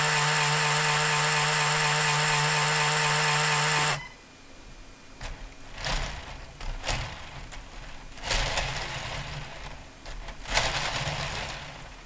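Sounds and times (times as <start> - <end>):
plastic gears rattling and scraping: 5.2 - 12.0.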